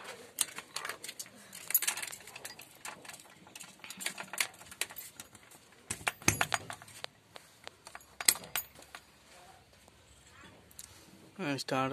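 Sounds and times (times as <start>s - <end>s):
keys jangling against metal: 0.4s - 7.0s, 7.8s - 9.1s.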